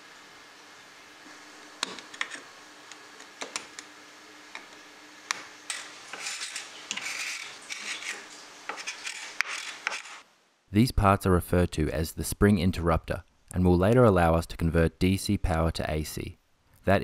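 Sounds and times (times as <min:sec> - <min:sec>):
metal blade scraping wood: 0:05.7 - 0:10.2.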